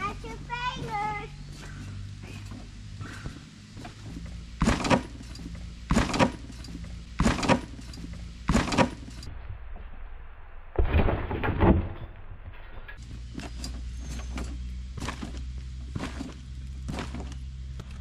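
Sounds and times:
trampoline creaking and rattling: 0:00.0 - 0:09.4, 0:10.8 - 0:18.0
child landing on trampoline: 0:00.7 - 0:07.8, 0:13.3 - 0:17.4.

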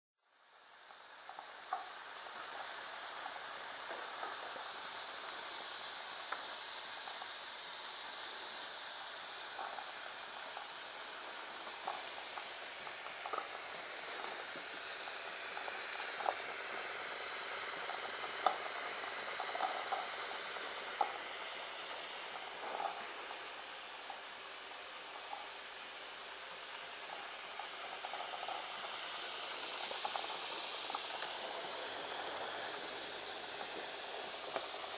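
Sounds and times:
steam engine hissing: 0:00.3 - 0:34.9
faint ticks: 0:00.8 - 0:05.1, 0:06.2 - 0:07.4.

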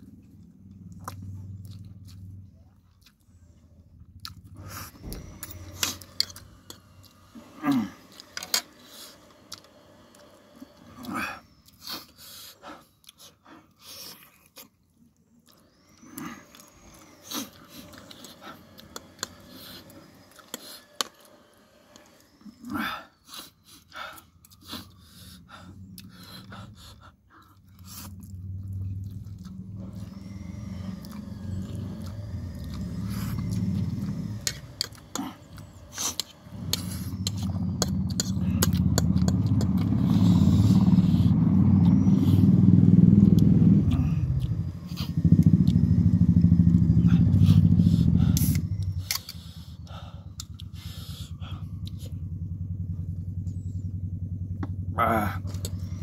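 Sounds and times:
chewing and lip smacks: 0:00.0 - 0:07.3, 0:11.0 - 0:22.5, 0:23.3 - 0:46.0, 0:48.3 - 0:52.2
low rumble: 0:00.0 - 0:08.2, 0:27.6 - 0:56.0.

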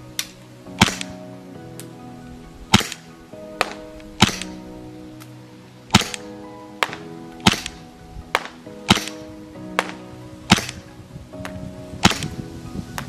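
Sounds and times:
background music: 0:00.0 - 0:13.0
airsoft gun shots: 0:00.8 - 0:01.2, 0:02.7 - 0:03.0, 0:03.6 - 0:04.6, 0:05.9 - 0:10.8, 0:12.0 - 0:12.3.

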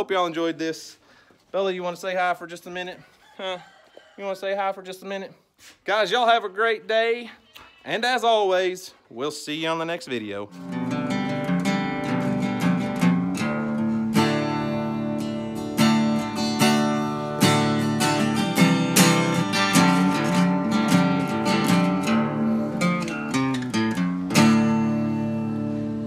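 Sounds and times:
acoustic guitar music: 0:10.5 - 0:26.0.

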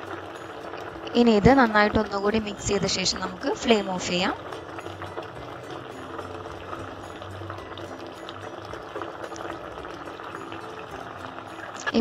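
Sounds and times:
curry bubbling in a pot: 0:00.0 - 0:12.0.

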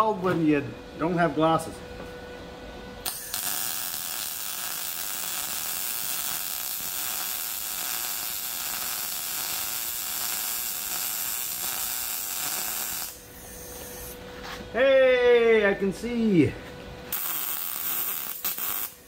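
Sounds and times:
welder arc crackling sizzle: 0:03.0 - 0:14.2, 0:17.1 - 0:19.0.

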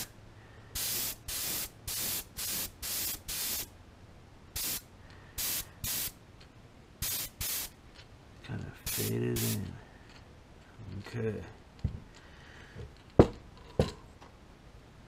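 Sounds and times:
airbrush spraying in hissing bursts: 0:00.7 - 0:03.7, 0:04.6 - 0:06.2, 0:07.0 - 0:07.7, 0:08.8 - 0:09.8.

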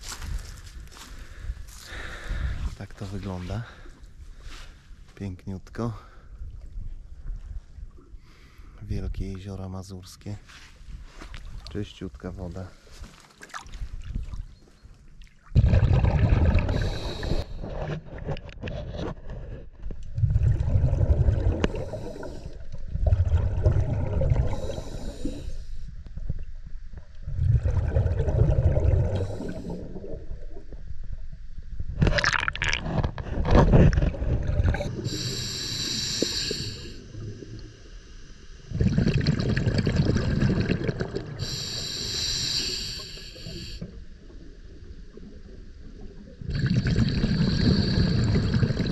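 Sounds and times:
gurgling exhaled bubbles: 0:15.3 - 0:18.3, 0:20.1 - 0:25.6, 0:27.2 - 0:30.9, 0:32.0 - 0:37.6, 0:38.7 - 0:48.9
regulator hissing inhalations: 0:16.7 - 0:17.6, 0:21.7 - 0:22.6, 0:24.5 - 0:26.0, 0:29.2 - 0:29.8, 0:34.9 - 0:38.7, 0:41.4 - 0:44.0, 0:46.6 - 0:48.6.

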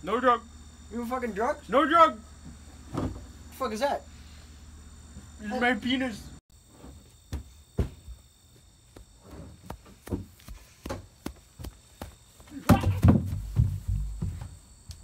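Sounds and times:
running footsteps: 0:07.8 - 0:14.6
person and trash can hitting ground: 0:12.5 - 0:14.6.

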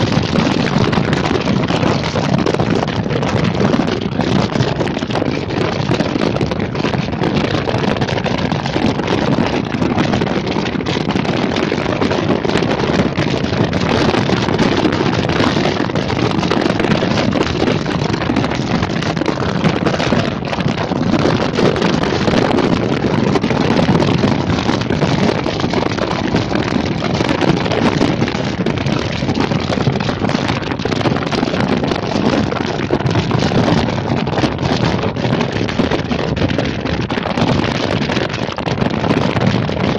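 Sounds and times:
low rumble: 0:00.0 - 0:39.9
wind buffeting microphone: 0:00.0 - 0:39.9.

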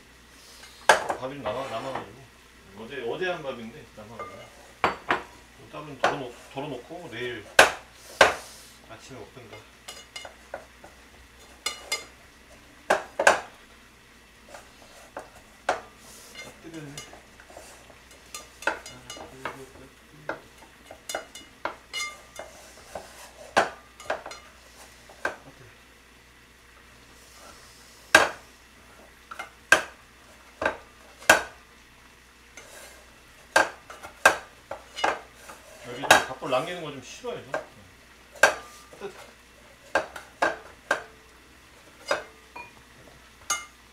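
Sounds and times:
spoon scraping a pot: 0:04.2 - 0:05.1, 0:11.4 - 0:12.2, 0:14.5 - 0:19.6, 0:20.4 - 0:25.4, 0:32.5 - 0:36.3, 0:38.4 - 0:41.1, 0:41.8 - 0:42.7.

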